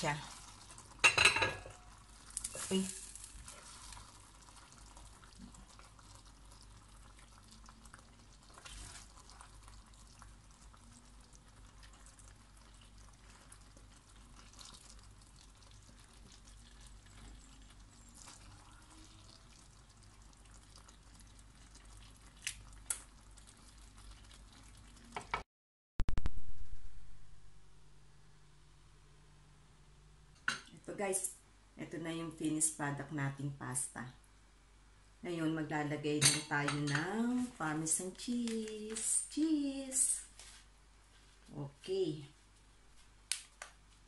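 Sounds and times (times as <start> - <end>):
pasta stirring in pan: 0.0 - 25.4.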